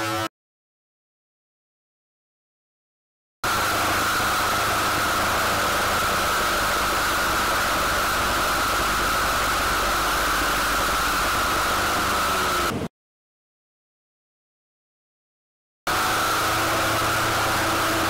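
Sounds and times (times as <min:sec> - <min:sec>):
brush cutter cutting wood: 0:00.0 - 0:00.3, 0:03.4 - 0:12.9, 0:15.9 - 0:18.0.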